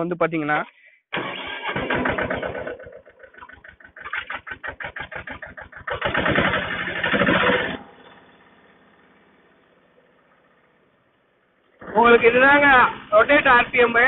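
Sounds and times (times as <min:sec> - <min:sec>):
tractor diesel engine revving: 0:01.1 - 0:14.0.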